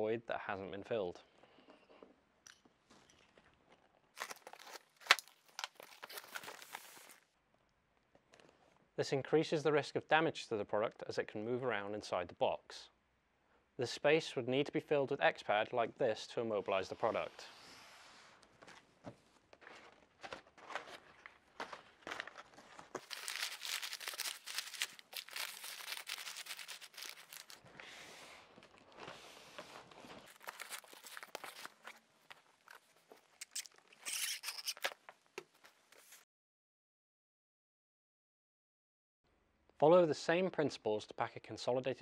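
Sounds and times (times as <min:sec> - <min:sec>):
paper crumpling and rustling: 0:04.2 - 0:07.2, 0:19.6 - 0:27.7, 0:28.5 - 0:36.2.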